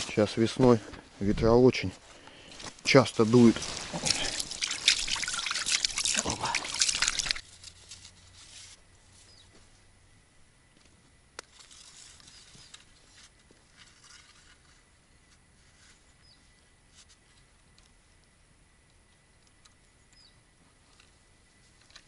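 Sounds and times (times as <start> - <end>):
faint rustles: 0.0 - 4.9, 6.0 - 9.9, 10.7 - 18.0.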